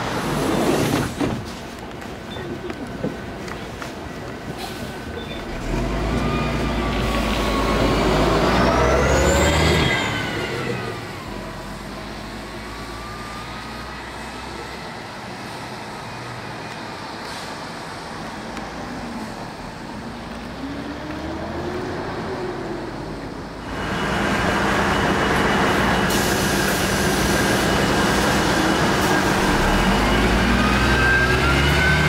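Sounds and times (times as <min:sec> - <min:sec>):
bus engine rumbling: 0:00.0 - 0:32.0
road traffic noise: 0:00.0 - 0:32.0
engine whine: 0:05.3 - 0:18.8, 0:19.4 - 0:32.0.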